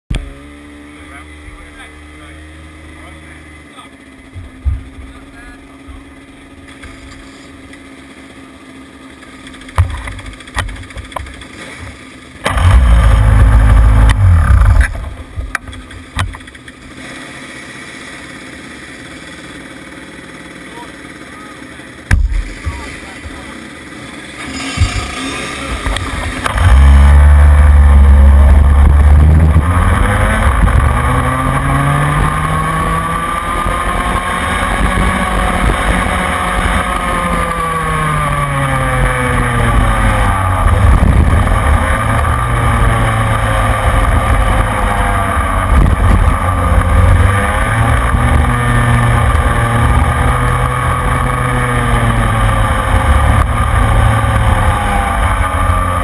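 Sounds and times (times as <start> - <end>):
kart engine revving: 0.1 - 56.0
wind noise on microphone: 34.6 - 36.9, 40.6 - 43.2, 45.4 - 47.3.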